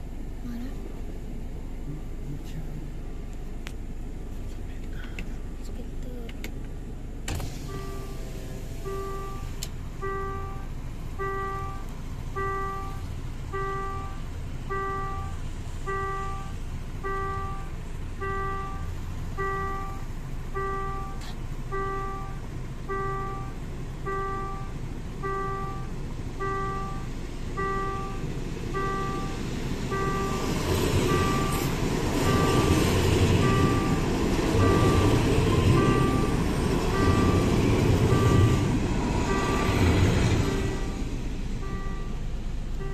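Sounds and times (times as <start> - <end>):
level crossing warning bell: 8.8 - 42.9
train rumbling past: 28.2 - 42.8.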